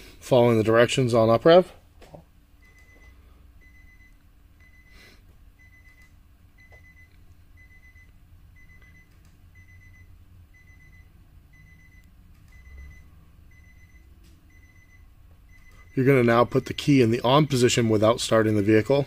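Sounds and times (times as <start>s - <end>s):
low steady hum: 0.0s - 19.0s
electronic warning beeps: 2.6s - 17.4s.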